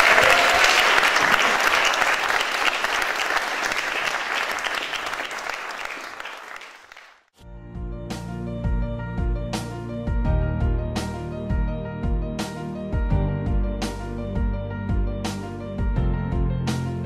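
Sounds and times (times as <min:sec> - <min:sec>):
audience clapping: 0:00.0 - 0:07.3.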